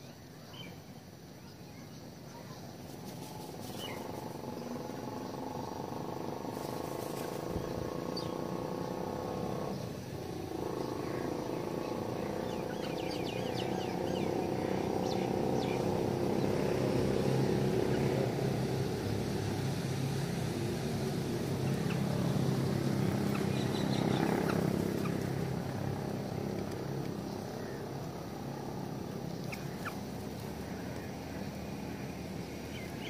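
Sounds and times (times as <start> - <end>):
small birds chirping: 0.0 - 33.0
low steady drone: 7.5 - 24.6.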